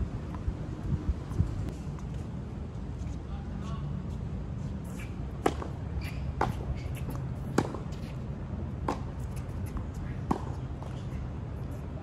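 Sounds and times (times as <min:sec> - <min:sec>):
racket hitting tennis ball: 0:04.9 - 0:11.2.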